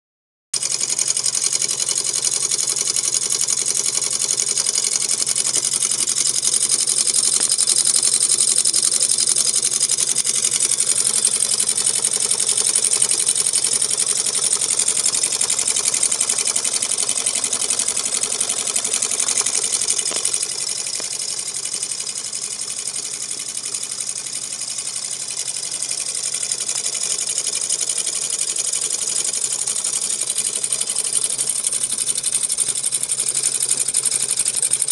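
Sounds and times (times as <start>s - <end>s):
hot-air engine clattering: 4.5s - 24.1s.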